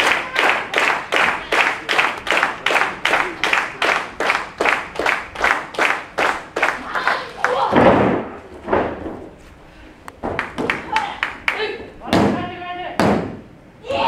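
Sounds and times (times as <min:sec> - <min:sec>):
audience clapping in rhythm: 0:00.0 - 0:07.6, 0:10.4 - 0:11.7.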